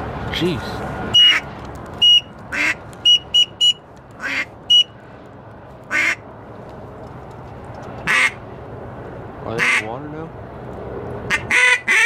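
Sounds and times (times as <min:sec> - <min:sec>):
ducks quacking: 0:09.5 - 0:09.9.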